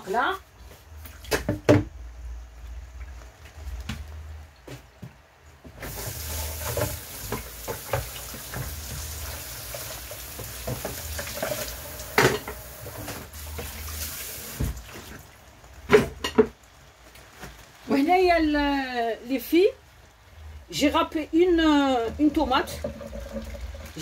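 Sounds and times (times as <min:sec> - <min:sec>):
leaves sizzling in oil: 0:05.8 - 0:24.0.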